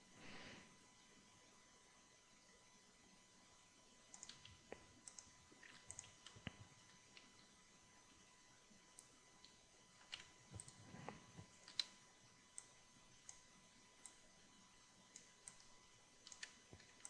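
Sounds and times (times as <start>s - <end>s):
mouse and keyboard clicks: 4.1s - 7.3s, 9.0s - 12.0s, 15.1s - 17.0s.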